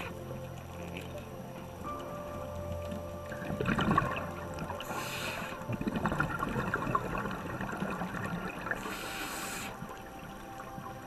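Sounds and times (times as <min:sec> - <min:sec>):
bubbling exhalations underwater: 0:03.3 - 0:09.9
regulator inhalation hiss: 0:04.8 - 0:05.7, 0:08.8 - 0:10.0.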